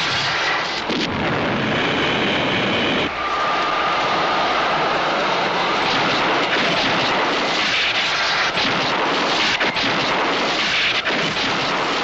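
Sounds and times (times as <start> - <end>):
sharp crackles of sparks: 0.0 - 3.1, 5.8 - 12.0.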